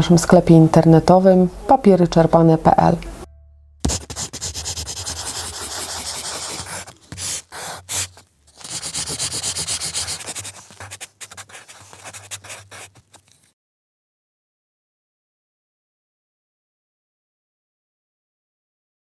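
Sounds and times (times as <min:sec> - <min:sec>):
pencil scratching on paper: 0:03.8 - 0:13.5.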